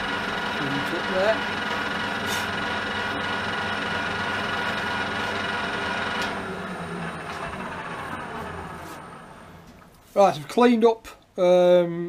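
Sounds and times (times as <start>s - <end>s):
lathe tool cutting metal hiss: 0.0s - 6.2s
metal lathe gear whine: 0.0s - 9.8s.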